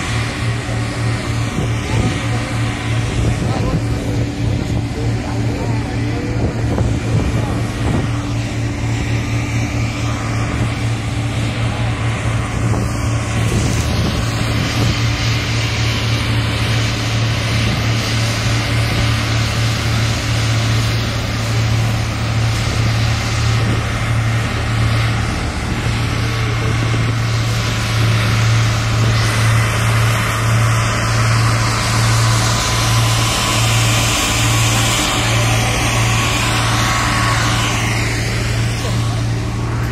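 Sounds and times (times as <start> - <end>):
diesel engines humming: 0.0 - 39.9.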